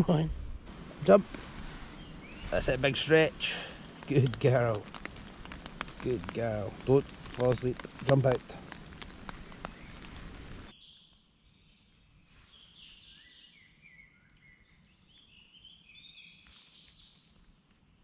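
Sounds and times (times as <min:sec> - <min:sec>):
steady hiss: 0:00.6 - 0:10.7
songbirds singing: 0:01.6 - 0:07.6, 0:08.7 - 0:18.0.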